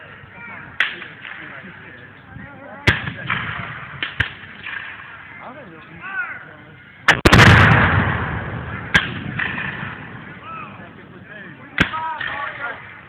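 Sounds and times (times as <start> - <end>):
gunshots with rolling echo: 7.1 - 10.4.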